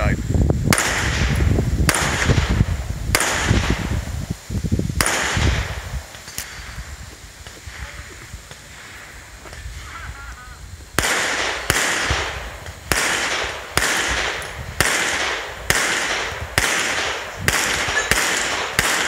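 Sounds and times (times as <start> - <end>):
pistol shots with echo: 0.7 - 4.0, 5.0 - 6.7, 11.0 - 19.0.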